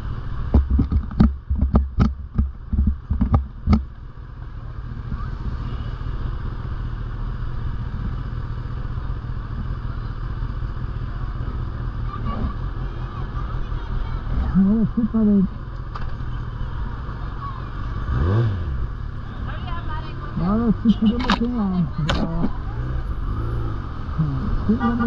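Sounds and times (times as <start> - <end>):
sharp clicks and knocks: 0.4 - 3.9
motorcycle engine idling: 1.3 - 25.0.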